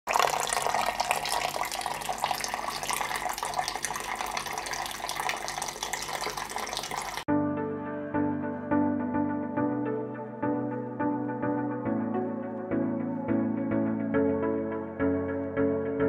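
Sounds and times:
fountain water splashing: 0:00.1 - 0:07.3
background music: 0:07.3 - 0:16.0.

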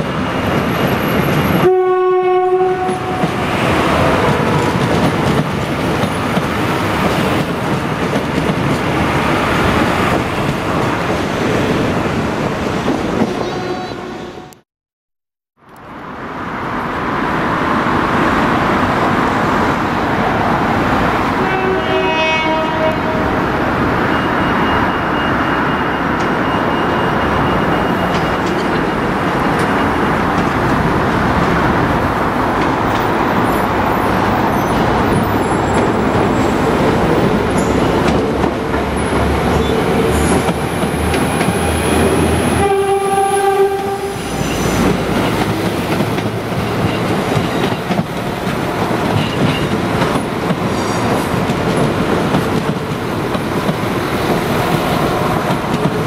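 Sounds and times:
diesel train passing: 0:00.0 - 0:14.6, 0:15.7 - 0:56.0
train horn blast: 0:01.6 - 0:03.4, 0:13.3 - 0:14.6, 0:21.4 - 0:23.3, 0:42.5 - 0:44.8.

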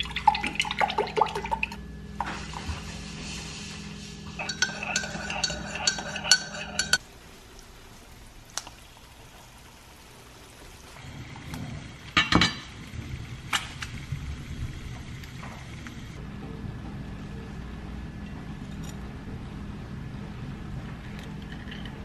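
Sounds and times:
kitchen noise: 0:03.8 - 0:07.0, 0:12.1 - 0:12.7
spoon clinking in a mug: 0:04.4 - 0:07.0.

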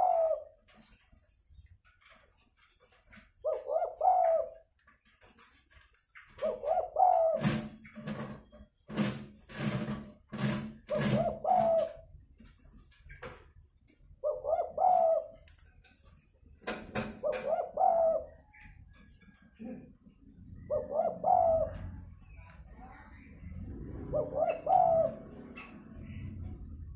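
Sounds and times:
dove cooing: 0:00.0 - 0:00.8, 0:03.2 - 0:04.7, 0:06.3 - 0:07.8, 0:10.8 - 0:12.1, 0:14.2 - 0:15.4, 0:17.0 - 0:18.8, 0:19.6 - 0:22.4, 0:23.3 - 0:26.9.

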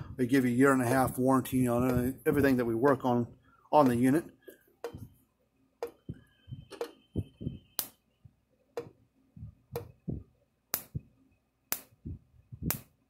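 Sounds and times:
soft low thumps: 0:00.9 - 0:03.4, 0:04.8 - 0:05.2, 0:05.8 - 0:11.2, 0:11.9 - 0:12.8.

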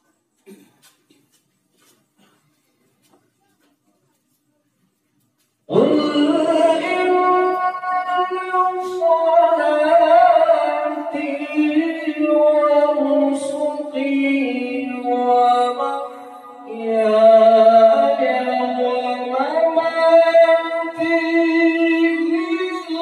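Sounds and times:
man chanting melodically: 0:05.7 - 0:16.1.

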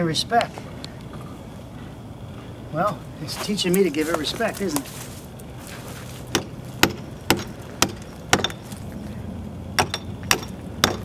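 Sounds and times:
hammer striking chisel on concrete: 0:06.3 - 0:08.6, 0:09.8 - 0:11.0.

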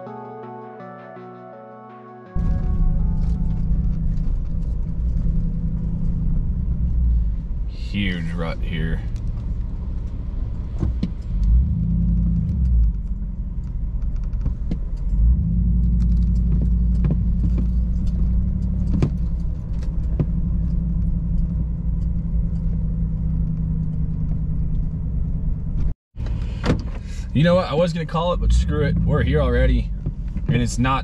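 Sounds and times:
truck engine under load: 0:02.4 - 0:28.7
truck clicks and rattles: 0:08.8 - 0:27.4.

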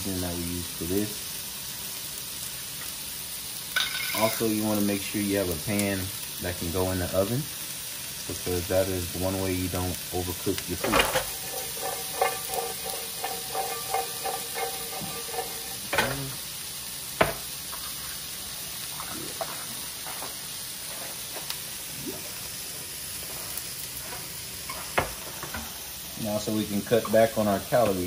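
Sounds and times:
green beans sizzling in oil: 0:00.0 - 0:28.0
utensil clacking against pan: 0:10.7 - 0:16.4.

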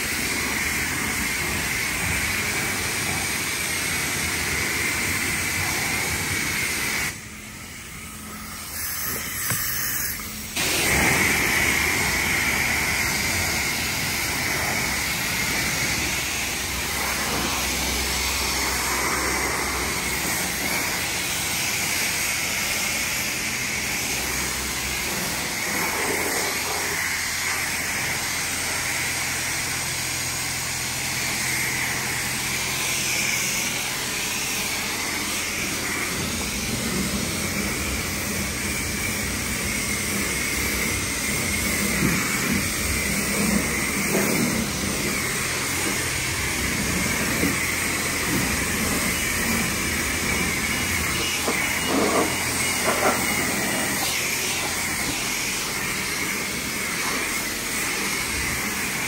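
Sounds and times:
car wash equipment hissing: 0:00.0 - 0:59.0.

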